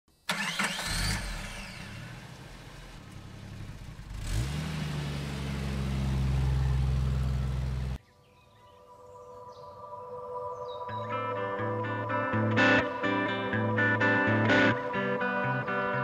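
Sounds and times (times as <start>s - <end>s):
engine starting and idling: 0.2s - 8.0s.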